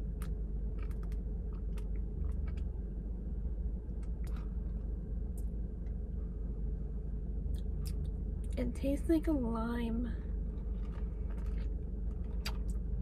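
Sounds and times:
car cabin hum: 0.0 - 13.0
person sipping and swallowing: 10.4 - 12.8.

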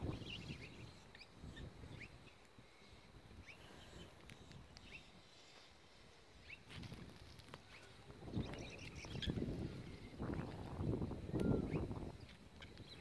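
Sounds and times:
wind buffeting microphone: 0.0 - 2.3, 6.5 - 13.0
faint bird chirps: 0.0 - 6.7, 7.4 - 13.0.

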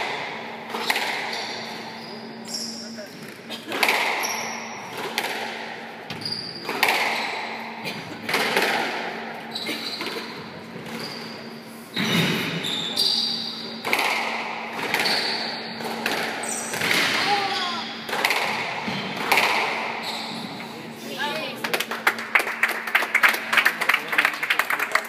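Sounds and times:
squash ball hits echoing: 0.0 - 1.7, 3.7 - 9.3, 13.7 - 20.6.

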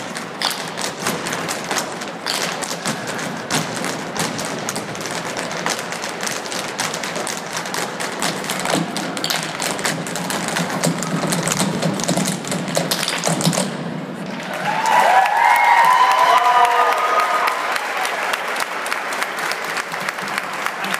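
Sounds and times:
hard shoes tapping on stage: 0.0 - 14.0
applause: 14.3 - 20.9.

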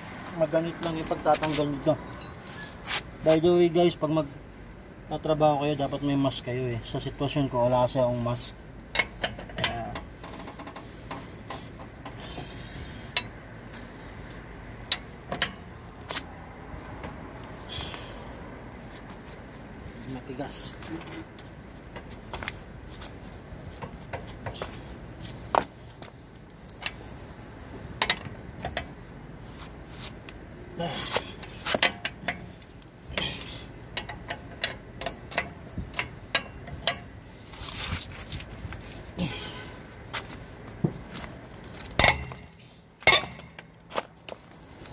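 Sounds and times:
wrench clinking on lug nuts: 31.0 - 37.2, 41.8 - 43.7.

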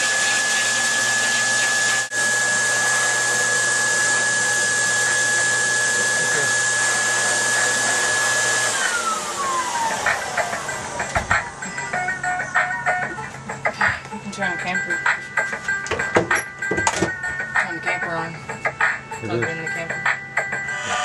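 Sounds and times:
motor spinning down: 0.0 - 13.0
pet dryer blowing with whine: 0.0 - 14.8, 20.6 - 21.0.

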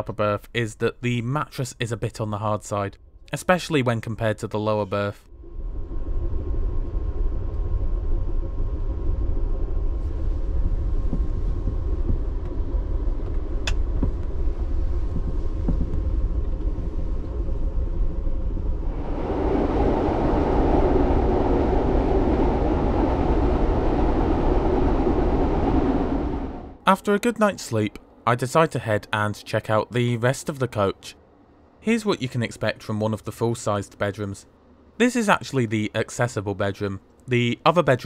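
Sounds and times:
train rumble from inside: 5.5 - 26.8.

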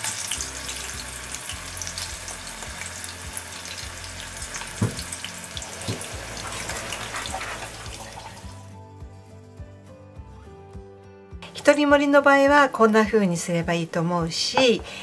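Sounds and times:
peppers sizzling in hot oil: 0.0 - 8.7
light knocks: 4.8 - 5.1.

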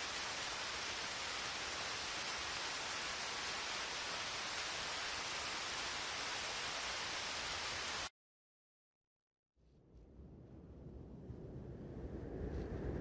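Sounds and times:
steady rain: 0.0 - 8.1.

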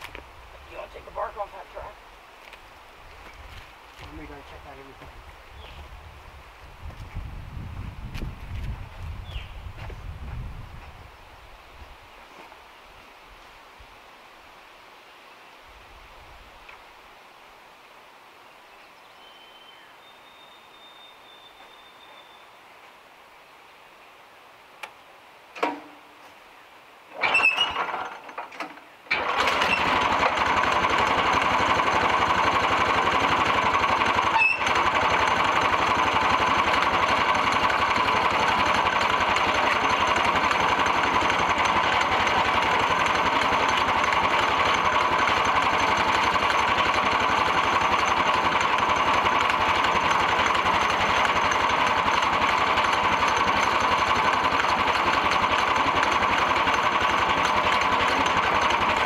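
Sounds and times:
small gasoline engine running: 3.2 - 5.8, 27.1 - 59.0.

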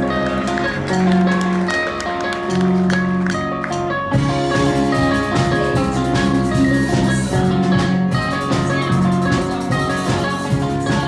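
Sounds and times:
bass: 0.0 - 11.0
drum kit beating: 0.0 - 11.0
electric guitar: 0.0 - 11.0
keyboard: 0.0 - 11.0.

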